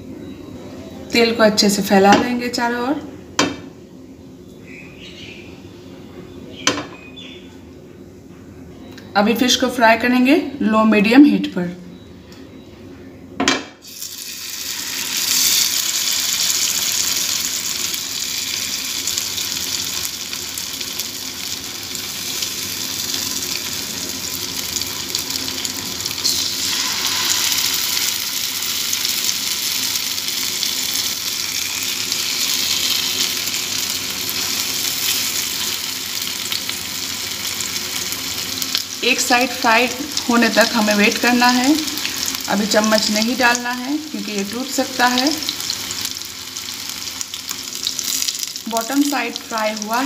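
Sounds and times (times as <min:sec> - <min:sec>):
fish sizzling in a frying pan: 0:13.8 - 0:50.0.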